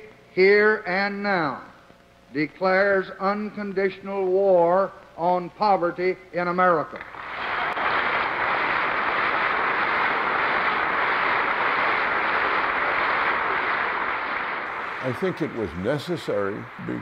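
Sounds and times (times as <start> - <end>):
large audience applauding: 7.1 - 16.8.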